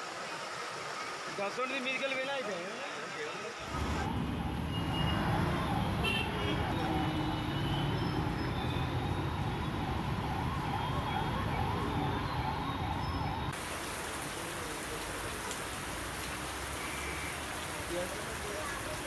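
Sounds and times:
steady hiss of rain: 0.0 - 7.0, 13.4 - 19.0
road traffic on wet street: 0.0 - 19.0.

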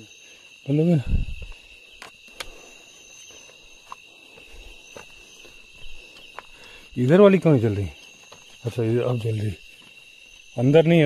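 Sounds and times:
crickets trilling: 0.0 - 11.0
footsteps: 3.4 - 6.8.

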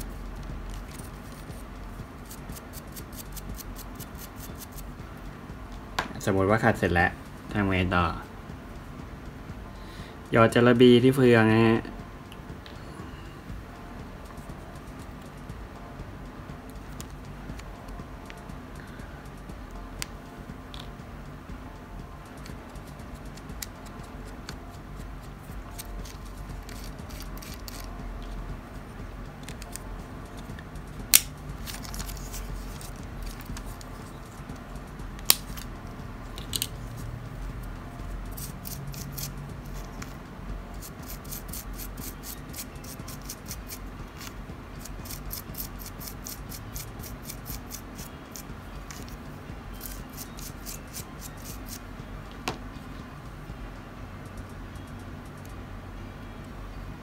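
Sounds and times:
toothbrush scrubbing plastic gears: 2.2 - 4.8, 25.7 - 27.9, 38.3 - 40.1, 40.8 - 49.2, 49.8 - 51.8
plastic parts clicking: 36.4 - 36.7.

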